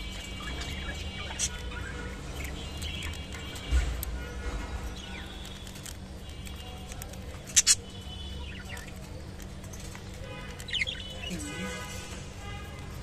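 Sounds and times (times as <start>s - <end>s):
budgerigars chirping: 0.0s - 4.0s, 7.4s - 9.1s, 10.6s - 11.8s.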